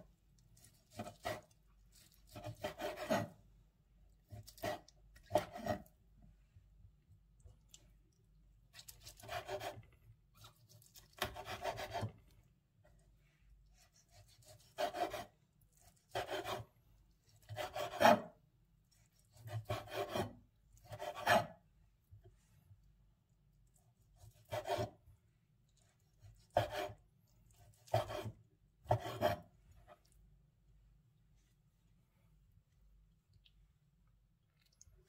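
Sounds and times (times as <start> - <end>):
knife cutting on wooden board: 0.6 - 3.4, 4.3 - 5.9, 11.0 - 12.2, 13.8 - 15.3, 16.1 - 16.7, 17.4 - 18.3, 19.4 - 21.6, 24.2 - 25.0, 26.3 - 27.0, 27.6 - 29.5.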